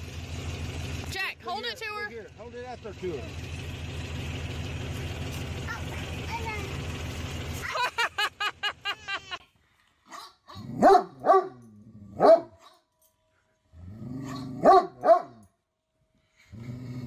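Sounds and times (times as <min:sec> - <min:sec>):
child giggling: 0:07.6 - 0:09.5
dog grumbling and barking: 0:10.5 - 0:12.5, 0:13.7 - 0:15.2, 0:16.5 - 0:17.0.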